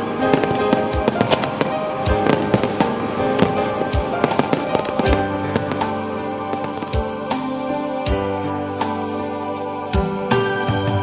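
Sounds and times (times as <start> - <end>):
fireworks cracking and crackling: 0.0 - 7.5
background music: 0.0 - 11.0
fireworks deep booms: 0.3 - 7.5.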